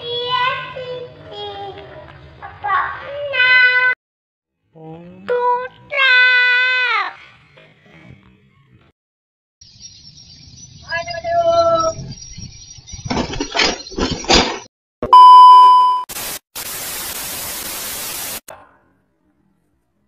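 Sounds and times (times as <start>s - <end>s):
test-pattern beep tone: 15.0s - 16.1s
television static hiss: 16.1s - 18.5s.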